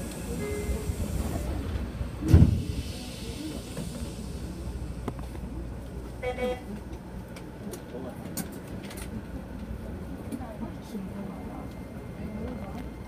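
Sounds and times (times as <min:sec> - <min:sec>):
train interior rumble: 0:00.0 - 0:13.0
heavy low thump: 0:02.2 - 0:02.8
air hiss: 0:02.3 - 0:04.6.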